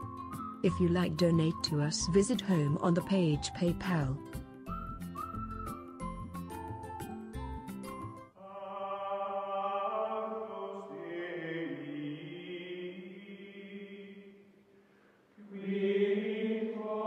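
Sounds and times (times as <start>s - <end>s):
choir-like chanting music: 8.4s - 14.5s, 15.4s - 17.0s.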